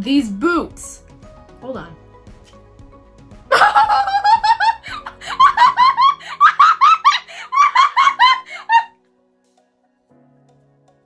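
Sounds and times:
person laughing hard: 3.5 - 8.9.

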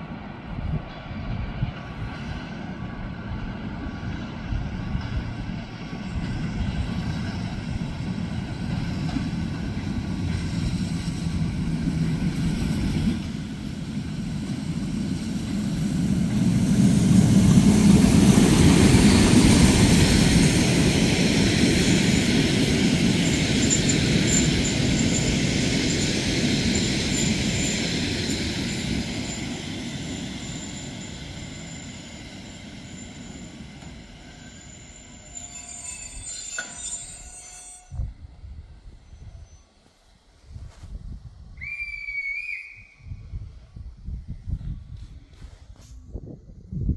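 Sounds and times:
train wheels rumbling on rails: 0.0 - 41.8
thin high squeal: 26.8 - 38.1, 38.9 - 40.0.

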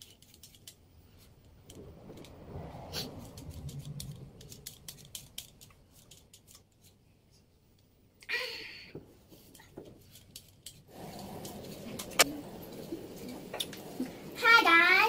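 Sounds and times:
low muffled rumble: 1.0 - 6.3.

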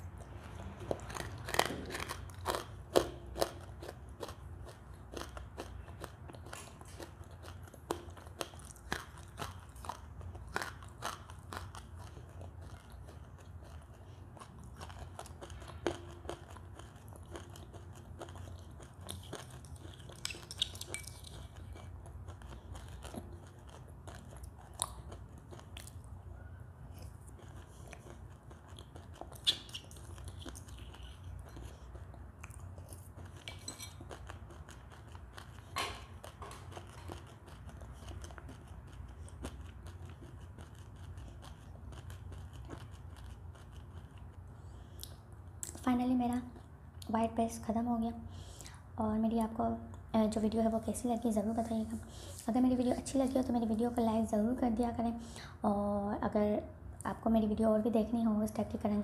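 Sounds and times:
crunching and chewing clay: 0.0 - 47.1
steady low hum: 0.0 - 59.0.

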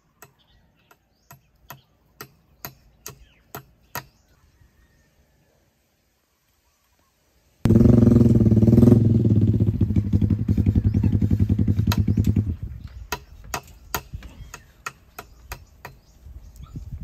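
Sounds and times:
motorcycle engine running: 7.7 - 12.9.

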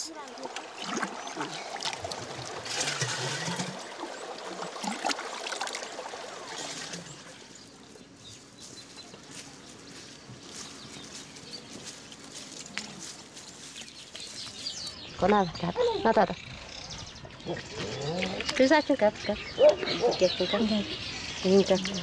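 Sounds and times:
water trickling and splashing: 0.0 - 14.6
faint outdoor ambience: 0.0 - 22.0.

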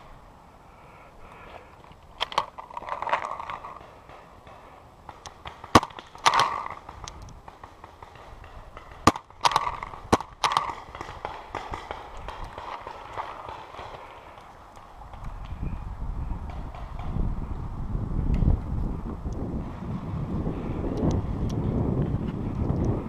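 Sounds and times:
paintball markers popping: 2.2 - 15.6.

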